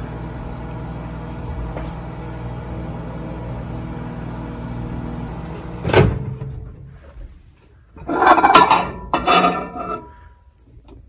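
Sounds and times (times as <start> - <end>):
microwave oven humming: 0.0 - 7.0.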